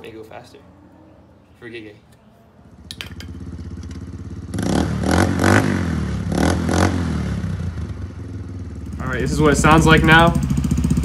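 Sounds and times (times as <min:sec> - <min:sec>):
atv engine revving: 0:02.6 - 0:11.0.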